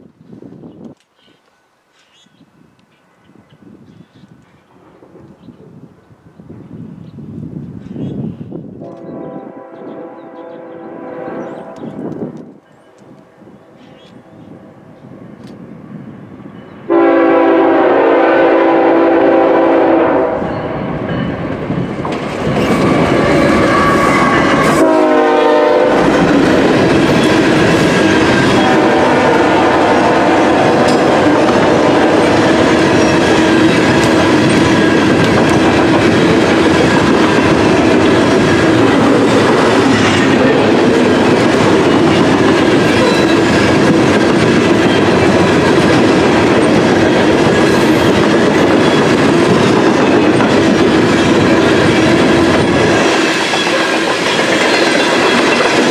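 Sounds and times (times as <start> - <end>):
train horn: 8.8 - 12.1, 16.9 - 21.1, 22.7 - 26.7, 28.0 - 34.5
wheels clacking over rail joints: 21.1 - 24.8, 30.8 - 55.9
freight cars rumbling: 25.8 - 55.9.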